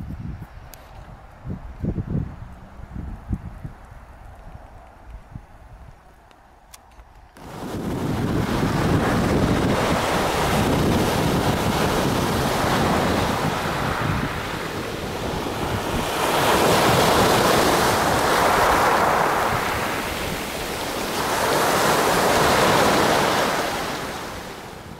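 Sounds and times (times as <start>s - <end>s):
waves washing on pebble shore: 7.4s - 24.9s.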